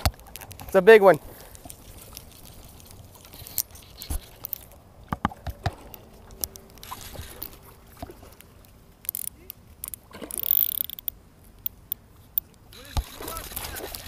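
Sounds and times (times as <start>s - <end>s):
fishing reel and rod clicks: 1.5s - 4.8s, 5.8s - 7.7s, 8.4s - 14.0s.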